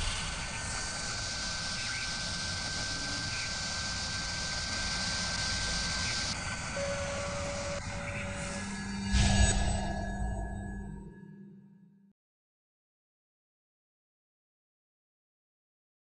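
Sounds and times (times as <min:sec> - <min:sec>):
hissing noise: 0:00.0 - 0:10.4
milling spindle whining: 0:00.0 - 0:10.9
lower machine tone: 0:00.0 - 0:12.1.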